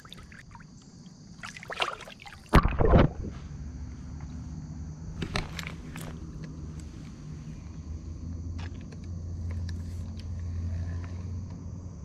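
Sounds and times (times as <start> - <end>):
fish splashing in water: 1.4 - 3.3.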